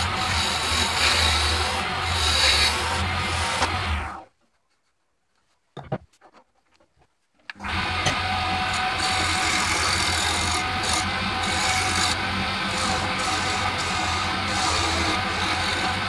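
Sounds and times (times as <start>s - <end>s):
chisel scraping spinning wood: 0.0s - 4.2s, 7.9s - 16.0s
lathe motor hum: 0.0s - 4.2s, 7.6s - 16.0s.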